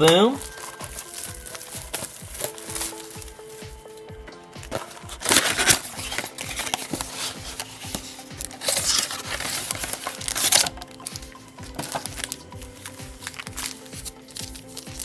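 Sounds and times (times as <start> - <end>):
cardboard and wrapping crinkling: 0.0 - 15.0.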